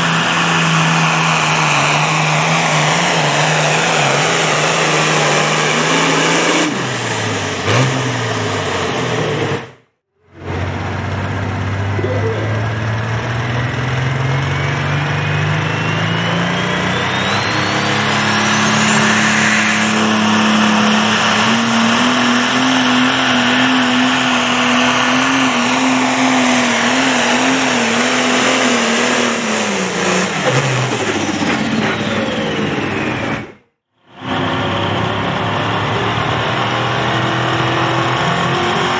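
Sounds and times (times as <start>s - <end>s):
diesel tractor engine revving: 0.0s - 38.9s
turbo whistle: 14.4s - 21.4s.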